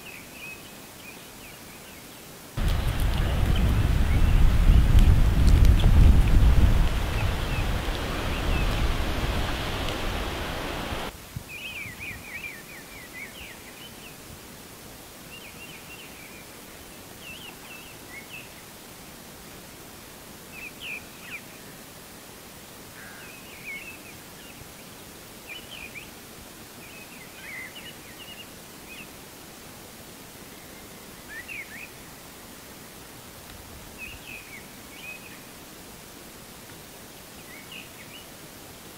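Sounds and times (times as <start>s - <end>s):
birds chirping and trilling: 6.8s - 13.9s.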